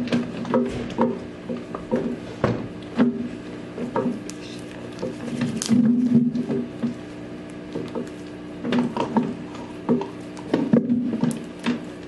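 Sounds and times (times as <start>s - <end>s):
utensils scraping slime in cups: 3.8s - 6.6s
wet squish of slime: 4.1s - 10.4s.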